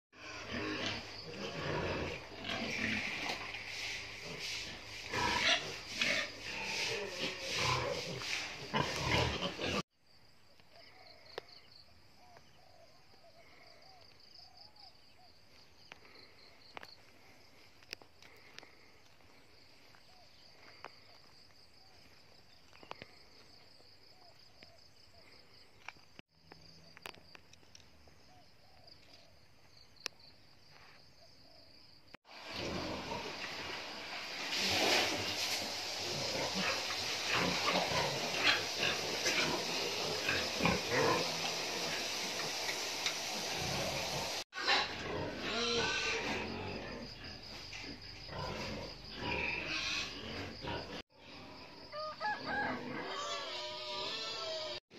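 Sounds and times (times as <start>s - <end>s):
piglets squealing and grunting: 4.2s - 9.8s, 36.0s - 42.5s, 43.5s - 47.0s, 48.3s - 51.0s, 52.6s - 54.8s.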